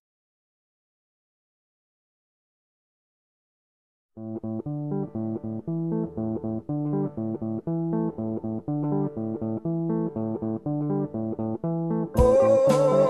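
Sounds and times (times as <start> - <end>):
plucked guitar and bass riff: 4.2 - 13.0.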